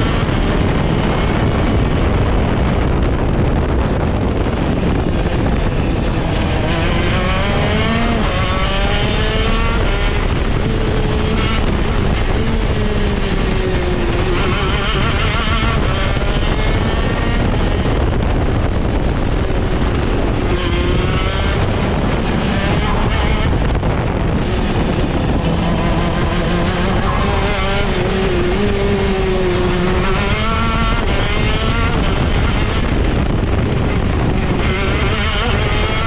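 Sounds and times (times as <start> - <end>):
go-kart engine revving: 0.0 - 36.0.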